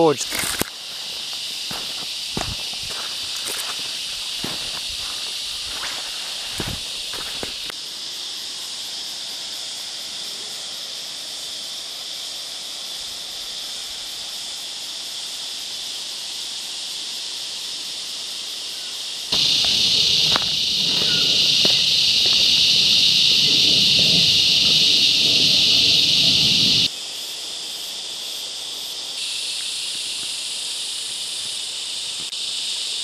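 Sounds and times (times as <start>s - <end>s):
cicadas droning: 0.0s - 33.0s
footsteps on dry leaves: 0.2s - 7.7s, 19.3s - 26.0s.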